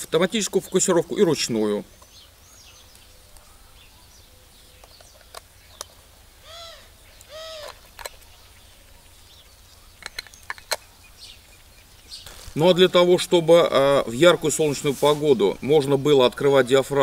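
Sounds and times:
bird calls: 0:00.0 - 0:17.0
camera lens and caps clicking: 0:04.8 - 0:06.0, 0:07.2 - 0:08.4, 0:10.0 - 0:10.9.

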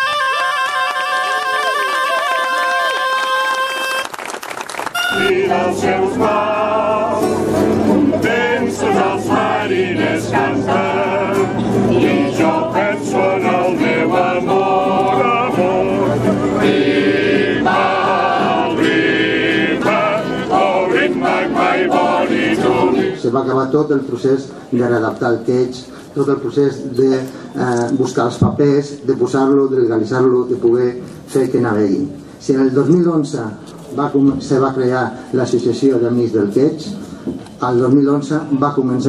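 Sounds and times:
acoustic guitar: 0:04.9 - 0:23.4
group singing in chorus: 0:05.0 - 0:23.3.

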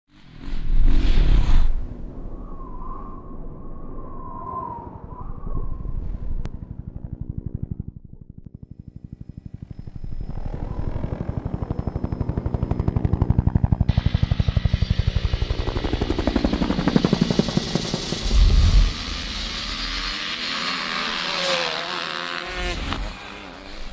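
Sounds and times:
dirt bike engine running: 0:06.5 - 0:23.9.

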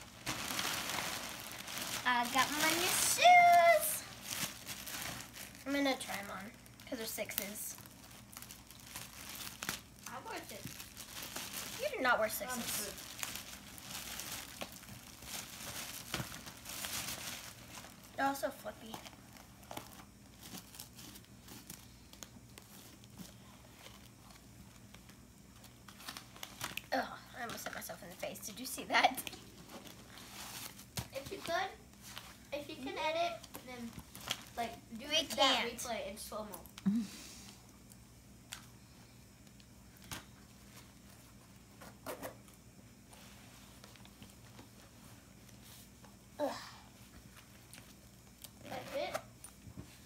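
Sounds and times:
plastic bag clicks and rustles: 0:00.0 - 0:18.2
steady low hum: 0:00.0 - 0:50.0.

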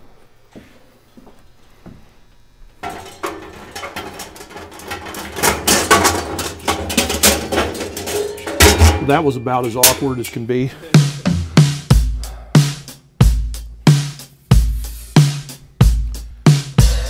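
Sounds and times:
metal basket clanking in drum: 0:02.8 - 0:10.4.

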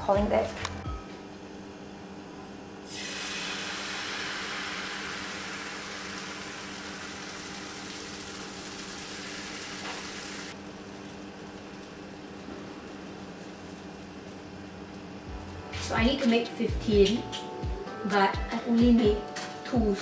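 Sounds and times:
batter sizzling in frying pan: 0:02.9 - 0:16.0
steady low hum: 0:10.5 - 0:19.2.

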